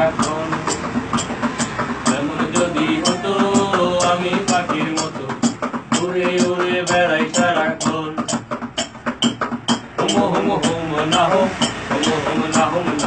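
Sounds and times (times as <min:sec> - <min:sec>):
man singing: 0:00.0 - 0:00.9, 0:02.0 - 0:08.5, 0:10.0 - 0:13.0
acoustic guitar strumming: 0:00.0 - 0:13.0.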